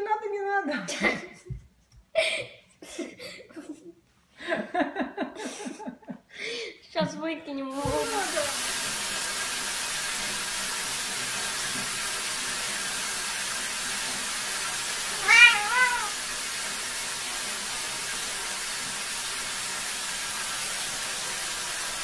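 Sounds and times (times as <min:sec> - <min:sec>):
steady hiss: 0:07.8 - 0:22.0
cat meowing: 0:15.1 - 0:16.2.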